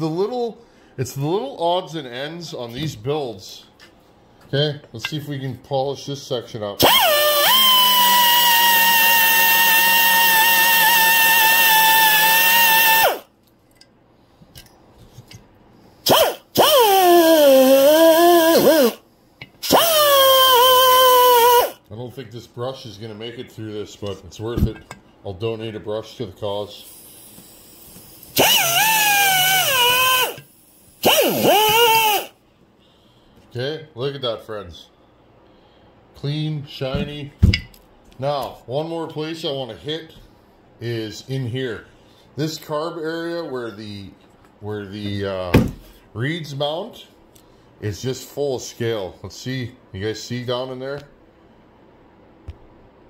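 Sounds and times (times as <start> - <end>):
wire brush power tool whining: 6.8 - 13.2, 16.1 - 19.0, 19.6 - 21.8, 28.2 - 32.4
rotary tool wire brush whine: 28.2 - 30.4, 31.0 - 32.3.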